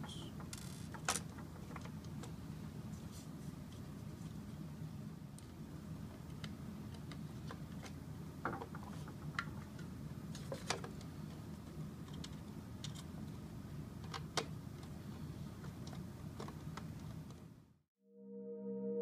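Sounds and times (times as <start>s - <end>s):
steady low hum: 0.0s - 17.8s
plastic parts clicking and knocking: 6.3s - 11.4s, 14.0s - 15.0s.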